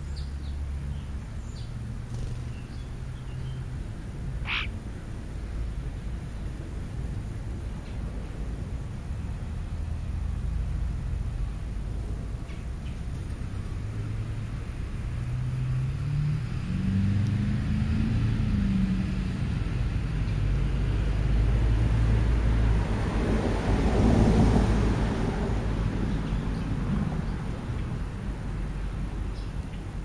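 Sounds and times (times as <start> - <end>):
road noise: 0.0 - 30.0
vehicle engine passing: 0.4 - 4.7, 13.5 - 29.4.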